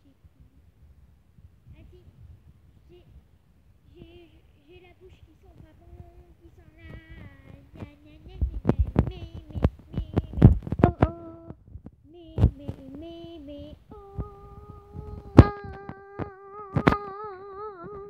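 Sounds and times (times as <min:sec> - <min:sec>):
girl singing held notes: 0:03.8 - 0:18.0.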